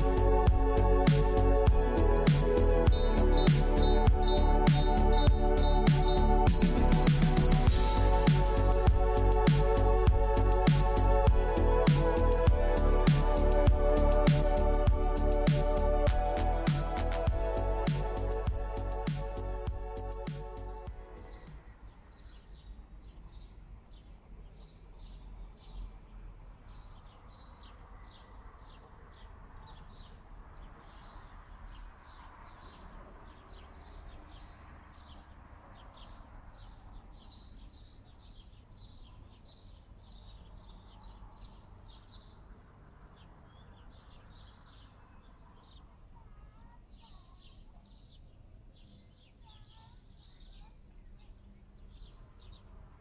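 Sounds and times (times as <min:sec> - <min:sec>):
rapid high chirps: 0:00.0 - 0:21.6
steady low rumble: 0:00.0 - 0:21.9.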